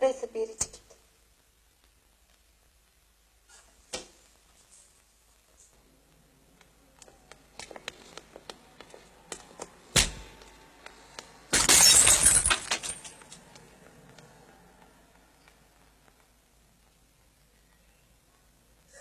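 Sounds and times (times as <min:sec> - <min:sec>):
glass bottles smashing: 0:11.5 - 0:13.3.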